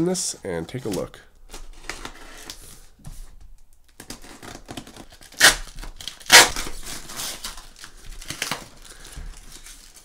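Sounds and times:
cardboard crinkling: 4.0s - 10.0s
packing tape ripping: 4.0s - 10.0s.

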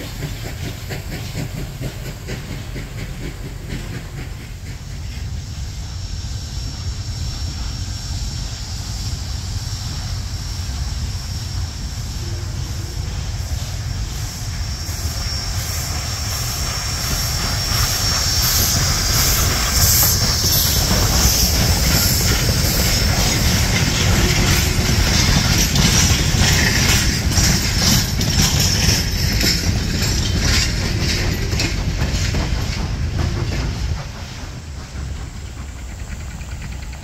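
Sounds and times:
steam locomotive exhaust beating: 0.0s - 37.0s
train wheels clattering on rails: 0.0s - 37.0s
high wheel squeal: 11.5s - 32.7s.

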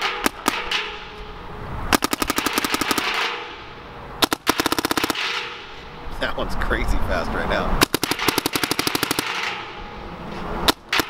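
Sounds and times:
paintball marker rapid pops: 1.9s - 3.4s, 4.2s - 5.4s, 7.8s - 9.6s, 10.6s - 11.0s.

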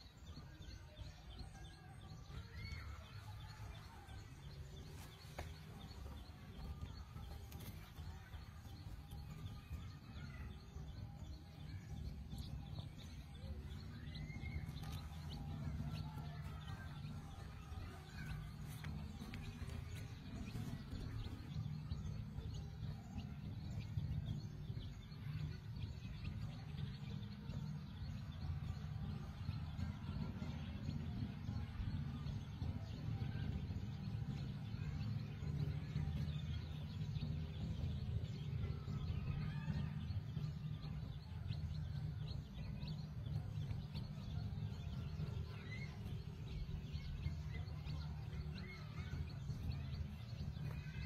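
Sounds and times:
steady low rumble: 1.1s - 51.0s.

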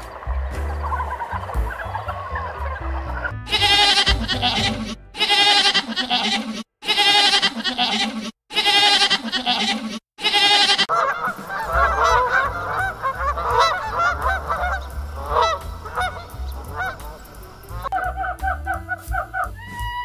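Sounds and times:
waterfowl honking: 0.0s - 5.8s, 10.4s - 19.6s
wavering bleats: 3.5s - 20.0s.

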